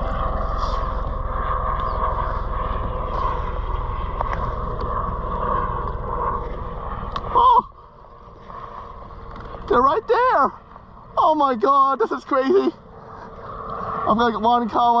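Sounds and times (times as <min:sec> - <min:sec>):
wind rumble on microphone: 0:00.0 - 0:11.6.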